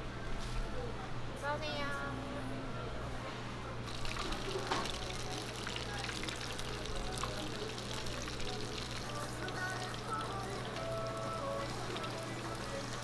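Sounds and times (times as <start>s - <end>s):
food sizzling in frying oil: 3.9s - 13.0s.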